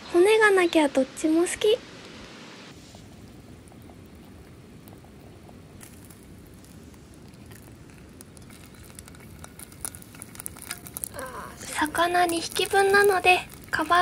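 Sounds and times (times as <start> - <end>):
fish sizzling on a griddle: 2.7 - 14.0
chopsticks clicking: 7.4 - 14.0.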